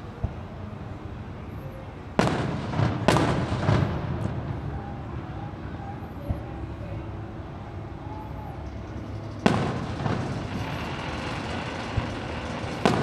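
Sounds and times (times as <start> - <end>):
fireworks booming: 2.2 - 5.2, 9.0 - 13.0
rumbling echo: 8.7 - 13.0.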